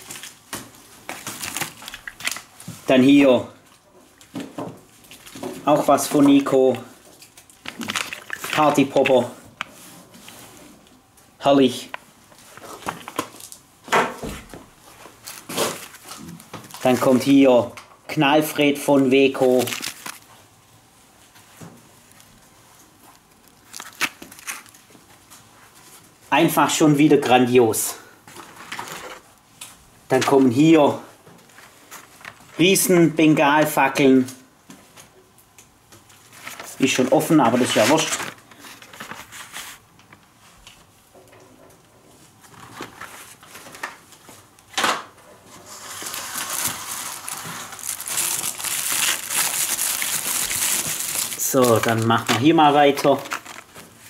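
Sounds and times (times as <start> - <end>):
cardboard packets rustling: 0.0 - 3.2, 4.0 - 10.6, 11.6 - 13.7, 14.4 - 17.4, 19.0 - 20.4, 21.3 - 26.2, 28.2 - 29.4, 36.0 - 40.8, 42.3 - 44.8, 45.4 - 54.0.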